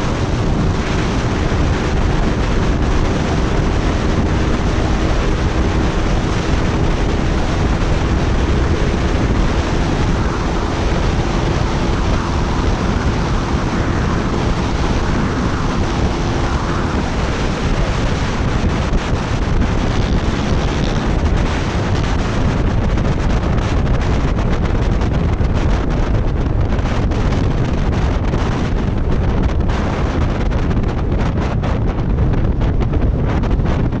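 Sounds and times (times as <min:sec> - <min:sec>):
heavy wind noise on camera: 0:00.0 - 0:34.0
faint scooter exhaust drone: 0:19.6 - 0:21.4.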